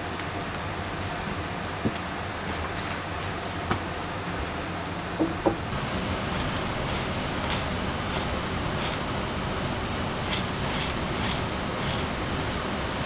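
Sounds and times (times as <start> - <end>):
steady rushing noise: 5.7 - 13.0
hands scratching kindling: 6.0 - 13.0.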